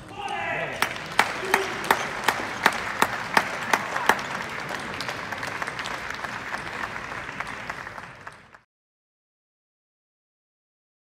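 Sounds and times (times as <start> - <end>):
spectators applauding: 0.2 - 8.7.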